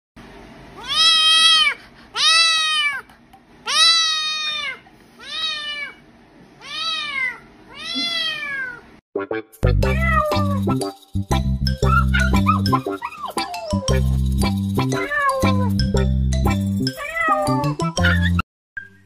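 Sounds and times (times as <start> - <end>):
kitten meowing: 0.8 - 3.0, 3.7 - 6.0, 6.6 - 8.8, 9.9 - 10.6, 15.0 - 15.7.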